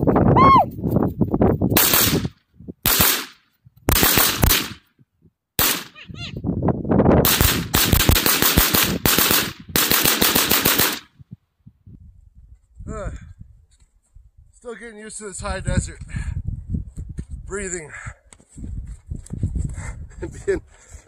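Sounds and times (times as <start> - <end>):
rifle shots in quick volleys: 1.8 - 4.8, 5.6 - 6.0, 7.2 - 11.1.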